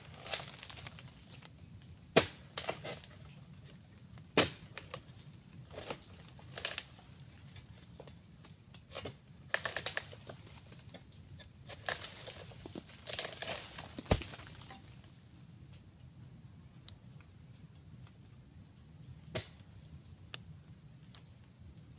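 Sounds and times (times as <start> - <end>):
sickle knocking and cracking stalk: 0.0 - 1.5, 2.1 - 3.2, 4.2 - 5.1, 5.7 - 6.9, 7.6 - 15.0, 19.3 - 19.7.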